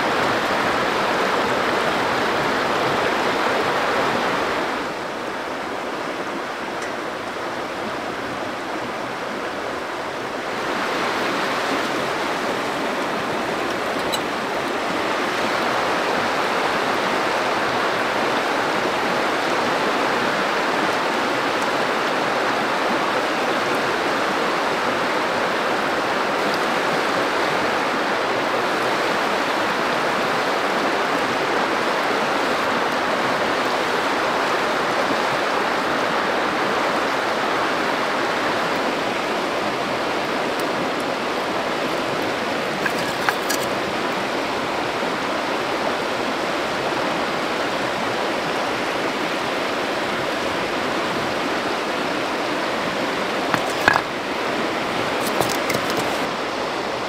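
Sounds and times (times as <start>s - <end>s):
river water rushing over stones: 0.0s - 57.0s.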